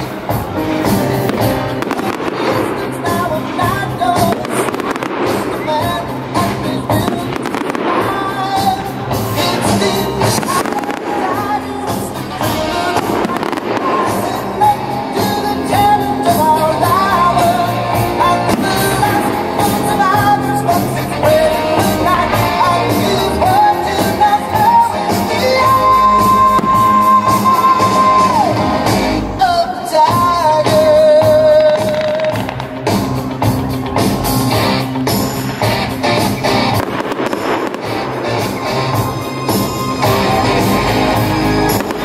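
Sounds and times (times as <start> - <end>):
fireworks bangs and crackles: 0.0 - 34.4, 35.0 - 42.0
rock-pop music with singing: 0.0 - 42.0
rockets launching: 12.4 - 14.8, 35.1 - 42.0.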